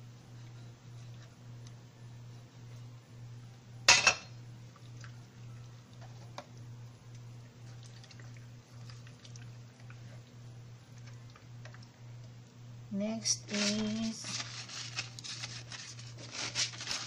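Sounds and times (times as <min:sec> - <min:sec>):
steady low hum: 0:00.0 - 0:17.0
kitchen items clattering: 0:13.4 - 0:17.0.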